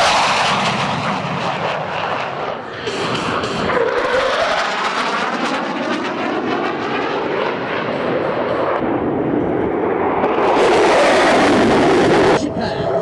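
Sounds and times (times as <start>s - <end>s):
fighter jet flyby: 0.0s - 13.0s.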